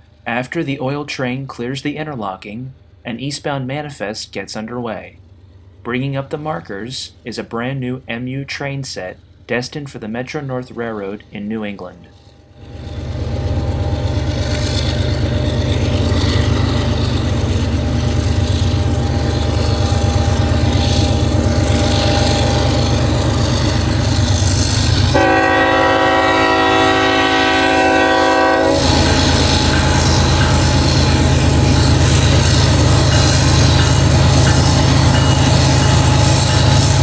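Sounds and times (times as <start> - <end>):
diesel locomotive engine rumble: 0.0 - 37.0
locomotive horn blast: 25.1 - 29.8.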